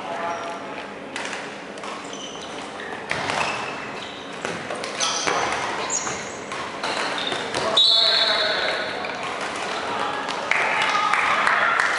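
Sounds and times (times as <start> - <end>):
shoes squeaking on wooden floor: 2.0 - 9.3.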